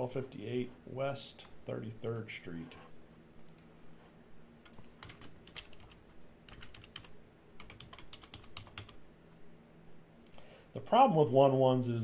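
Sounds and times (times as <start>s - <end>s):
faint keyboard typing: 1.4s - 3.8s, 4.6s - 9.0s.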